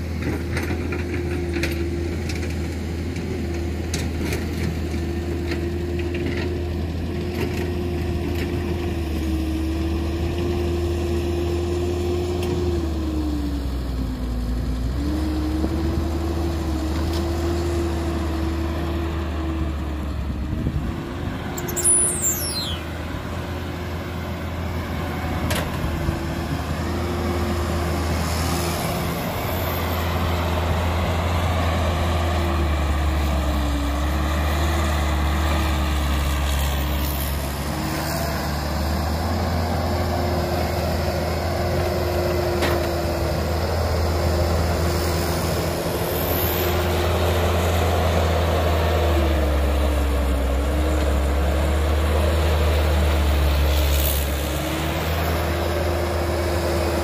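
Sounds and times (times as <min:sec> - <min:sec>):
diesel excavator engine drone: 0:00.0 - 0:57.0
hydraulic whine: 0:20.6 - 0:23.4.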